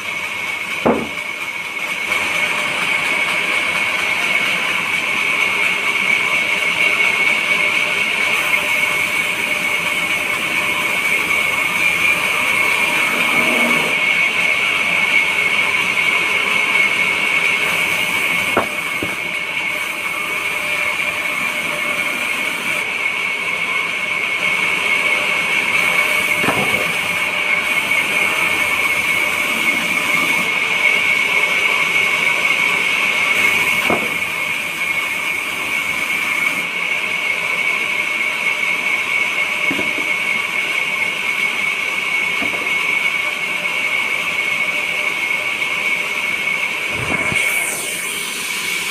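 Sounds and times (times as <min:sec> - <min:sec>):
band saw whining: 0:00.0 - 0:48.9
wood knocking against machine: 0:00.8 - 0:01.3, 0:18.5 - 0:19.2, 0:26.3 - 0:27.1, 0:33.8 - 0:34.3, 0:39.7 - 0:40.1, 0:42.4 - 0:42.8.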